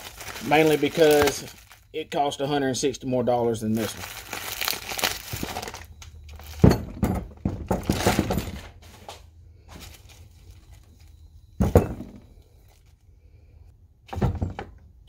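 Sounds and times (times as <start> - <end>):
bubble wrap crinkling and tearing: 0.0 - 2.0, 3.7 - 6.5
heavy thunks on wooden workbench: 6.6 - 8.6, 11.6 - 12.2, 14.1 - 14.8.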